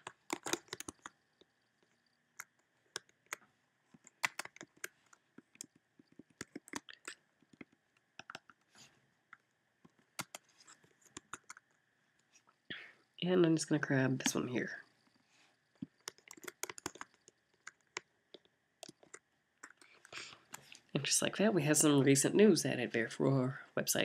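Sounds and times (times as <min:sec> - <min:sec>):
mouse and keyboard clicks: 0:00.0 - 0:01.2, 0:01.8 - 0:08.6, 0:09.3 - 0:11.8, 0:15.8 - 0:20.8.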